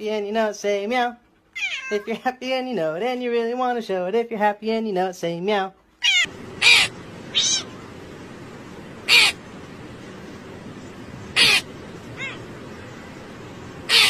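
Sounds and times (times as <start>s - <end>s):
steady background hiss: 0.0s - 14.0s
harsh animal calls: 6.0s - 7.8s, 9.0s - 9.5s, 11.0s - 13.2s, 13.8s - 14.0s.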